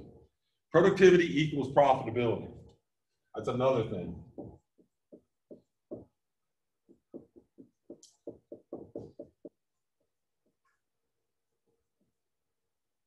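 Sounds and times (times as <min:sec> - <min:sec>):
marker knocking on whiteboard: 0:04.2 - 0:09.7.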